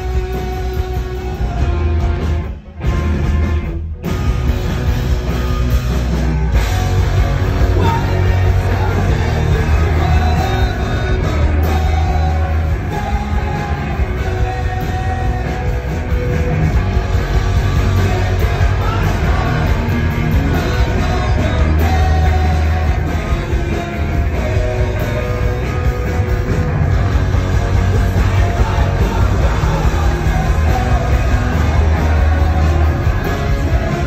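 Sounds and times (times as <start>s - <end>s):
rock band playing live: 0.0s - 34.0s
person singing: 7.6s - 16.1s, 27.9s - 34.0s.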